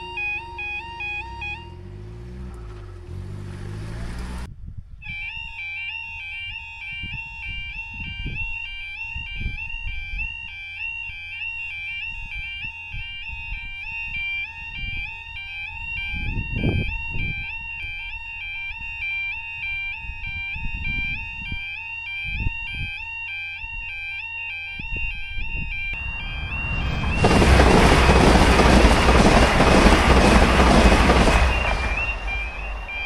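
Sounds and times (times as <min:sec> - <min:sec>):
two-tone crossing alarm: 0:00.0 - 0:03.5, 0:05.0 - 0:33.0
passenger train rushing past: 0:26.0 - 0:33.0.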